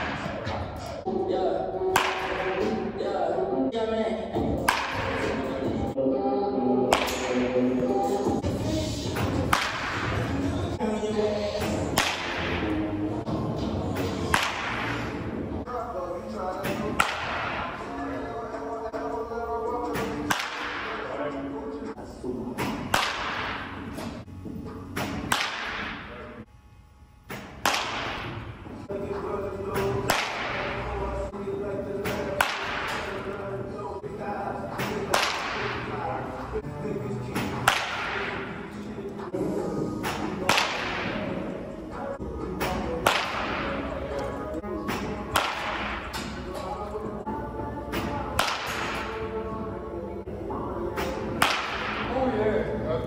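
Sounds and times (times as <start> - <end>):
baseball bat cracking ball: 1.9 - 2.8, 4.6 - 5.4, 6.9 - 7.5, 9.2 - 10.3, 11.6 - 12.8, 14.0 - 15.3, 16.6 - 17.8, 19.9 - 21.0, 22.6 - 24.1, 24.9 - 26.1, 27.3 - 28.5, 29.7 - 30.9, 32.0 - 33.3, 34.7 - 36.0, 37.3 - 38.6, 40.0 - 41.3, 42.6 - 43.9, 44.8 - 46.7, 47.9 - 49.2, 51.0 - 52.2.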